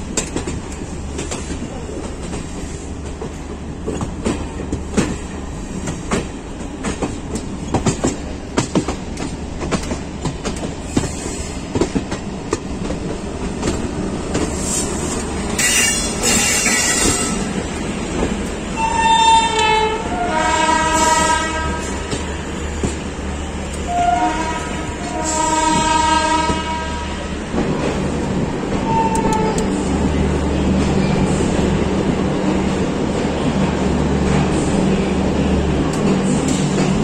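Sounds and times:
moving train rumble: 0:00.0 - 0:37.0
train horn blasts: 0:15.6 - 0:17.6, 0:18.8 - 0:22.2, 0:23.8 - 0:27.3, 0:28.8 - 0:29.7.

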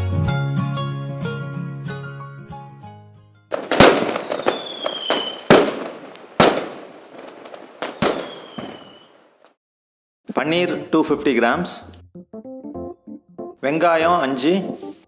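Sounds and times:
firework bangs with crackle: 0:03.5 - 0:09.4
whistling rocket: 0:03.6 - 0:09.3.

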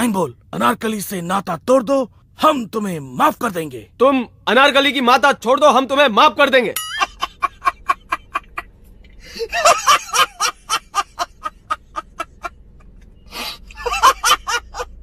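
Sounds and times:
man laughing hard: 0:07.0 - 0:08.7, 0:09.3 - 0:15.0.

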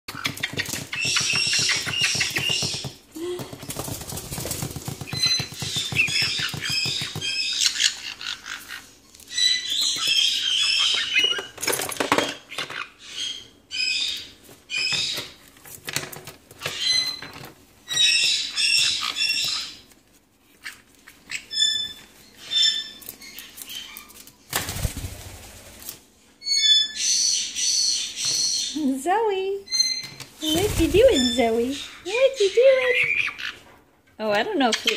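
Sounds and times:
baby parrots chirping: 0:00.1 - 0:03.0, 0:04.7 - 0:11.6, 0:16.6 - 0:19.9, 0:20.6 - 0:24.1, 0:26.4 - 0:28.8, 0:29.7 - 0:33.6
plastic toys clattering: 0:11.3 - 0:12.8.

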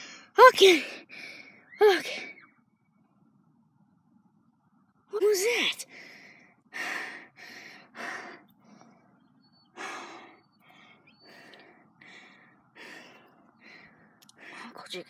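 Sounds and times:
boy breathing heavily: 0:00.0 - 0:01.6, 0:05.9 - 0:14.8.

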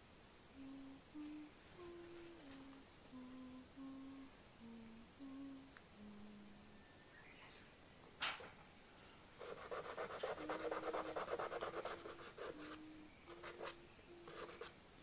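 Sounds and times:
person softly humming: 0:00.5 - 0:06.9, 0:09.4 - 0:14.8.

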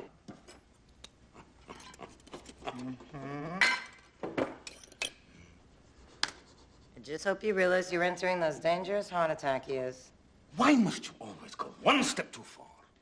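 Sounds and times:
person vocal sound: 0:02.7 - 0:03.7
knife clinking on glass jar: 0:04.6 - 0:05.2.

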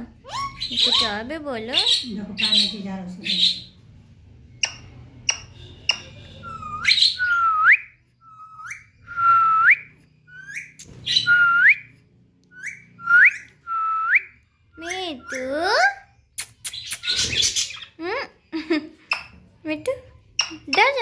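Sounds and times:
parrot whistling: 0:04.6 - 0:11.9, 0:12.5 - 0:15.6.

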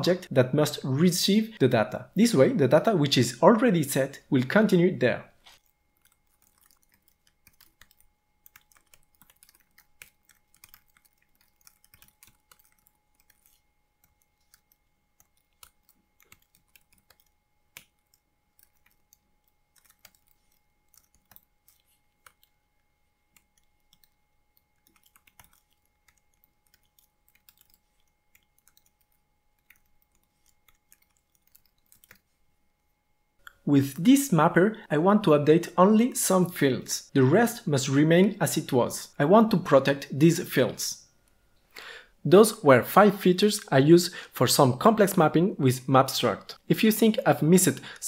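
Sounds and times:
keyboard typing clicks: 0:05.6 - 0:22.6, 0:23.3 - 0:32.2.

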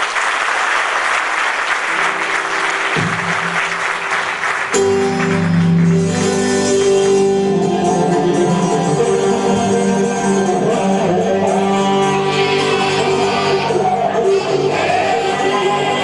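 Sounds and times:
audience applauding: 0:00.0 - 0:07.2
live band playing a song: 0:02.0 - 0:16.0.

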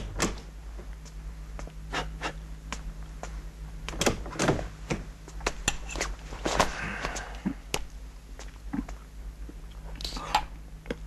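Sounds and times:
footsteps indoors: 0:00.0 - 0:08.6
faint steady hum: 0:00.0 - 0:11.0.

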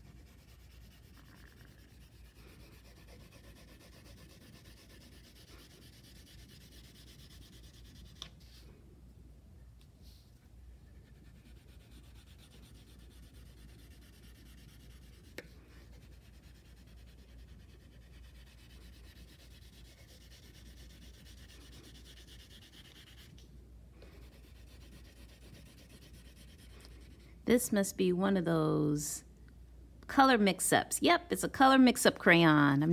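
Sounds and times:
crayon scribbling on paper: 0:00.0 - 0:08.3, 0:11.0 - 0:23.3, 0:24.1 - 0:27.2.

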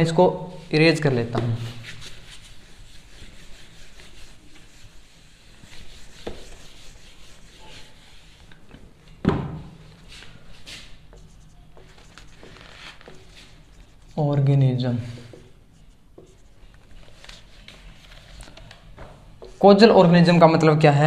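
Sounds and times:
marker writing on whiteboard: 0:01.4 - 0:08.7, 0:10.7 - 0:14.2, 0:15.2 - 0:17.0
duster rubbing whiteboard: 0:01.5 - 0:08.6.

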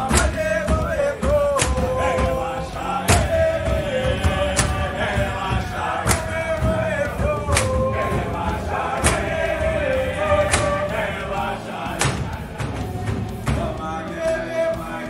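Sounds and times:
men singing a chant: 0:00.0 - 0:15.0
sharp clap: 0:07.5 - 0:13.7.

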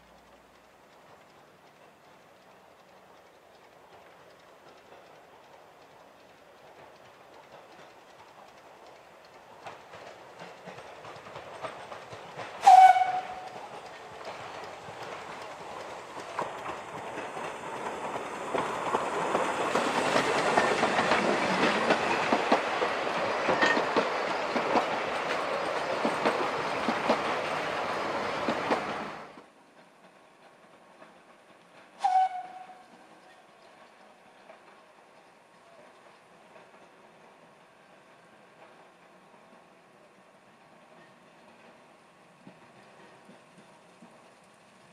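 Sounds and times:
wheels clicking over rail joints: 0:00.0 - 0:40.1
steam locomotive running past: 0:00.0 - 0:44.9
steam whistle blast: 0:12.6 - 0:13.5, 0:32.0 - 0:32.9.

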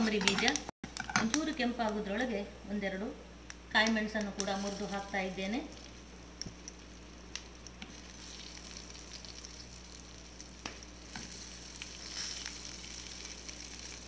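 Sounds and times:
oil sizzling in a pan: 0:04.3 - 0:14.0.

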